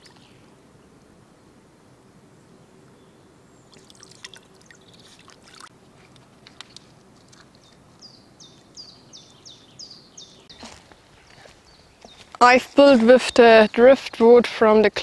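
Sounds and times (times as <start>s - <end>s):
dog wading through shallow water: 3.7s - 5.7s.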